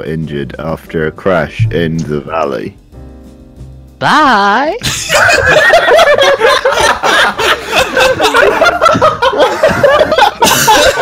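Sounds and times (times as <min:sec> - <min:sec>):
people laughing: 0:04.8 - 0:11.0.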